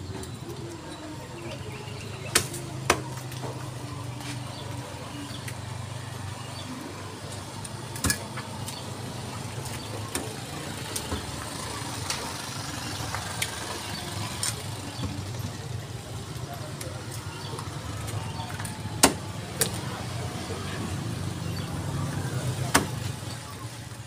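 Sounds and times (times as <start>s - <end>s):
idling engine hum: 0.0s - 24.0s
cleavers chopping on wooden blocks: 18.0s - 19.9s, 22.7s - 23.1s.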